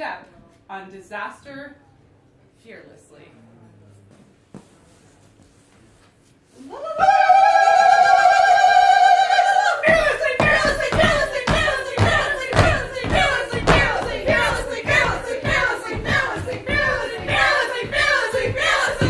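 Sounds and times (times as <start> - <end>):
voices holding sung note: 6.7 - 19.0
people stamping feet: 9.8 - 19.0.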